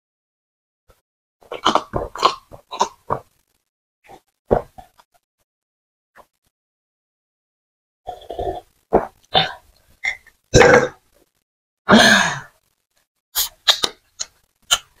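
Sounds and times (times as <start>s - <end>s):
person gulping water: 1.4s - 3.2s, 8.1s - 11.0s.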